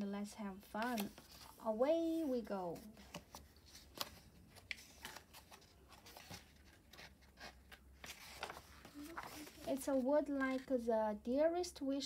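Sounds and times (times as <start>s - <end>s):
book pages rustling and clicking: 0.7s - 1.6s, 2.7s - 10.7s
page turning: 0.8s - 1.6s, 3.0s - 10.6s.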